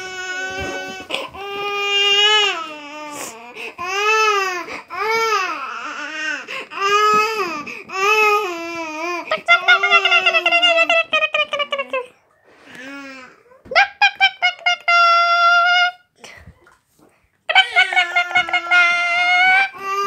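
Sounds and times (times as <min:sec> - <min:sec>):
baby crying: 0:00.0 - 0:10.7, 0:17.6 - 0:20.0.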